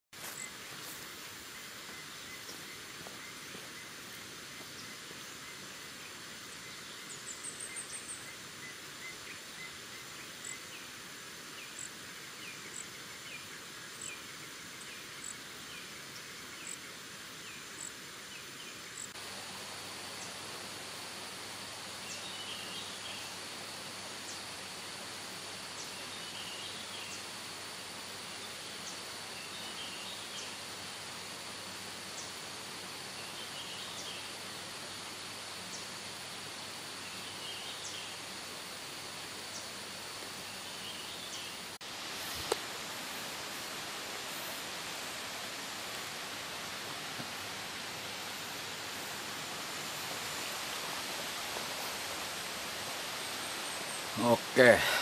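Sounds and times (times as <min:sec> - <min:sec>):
high insect drone: 0:00.2 - 0:55.0
steady hiss: 0:00.2 - 0:55.0.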